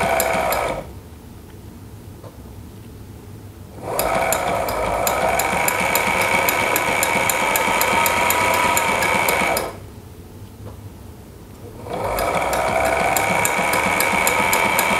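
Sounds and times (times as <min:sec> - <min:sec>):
sewing machine stitching: 0:00.0 - 0:00.9, 0:03.8 - 0:09.8, 0:11.7 - 0:14.9.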